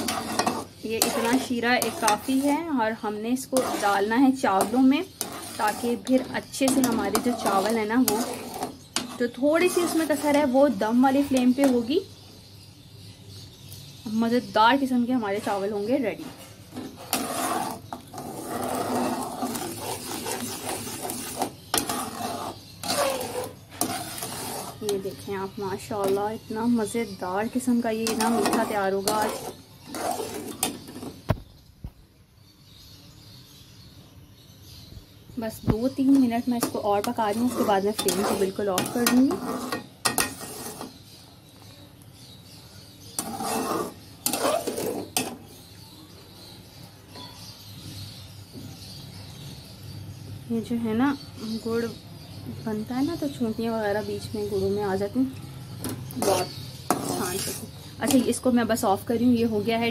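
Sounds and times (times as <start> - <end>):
metal spatula scraping a pan: 0.0 - 12.1, 14.7 - 31.3, 35.8 - 41.2, 43.0 - 45.9, 55.7 - 58.9.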